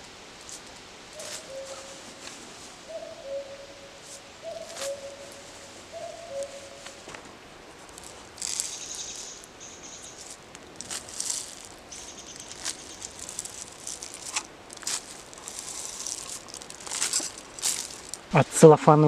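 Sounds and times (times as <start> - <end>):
seeds rattling and pattering: 6.4 - 18.4.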